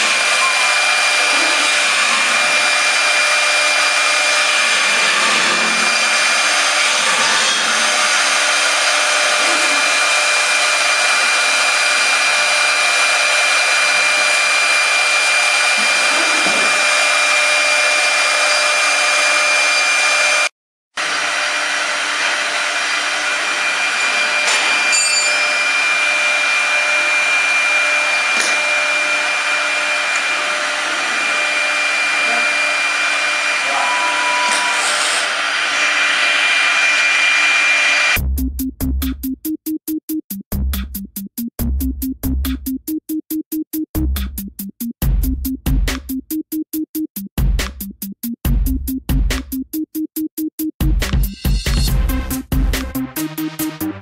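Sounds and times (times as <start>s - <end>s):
router spindle whining: 0.0s - 38.2s.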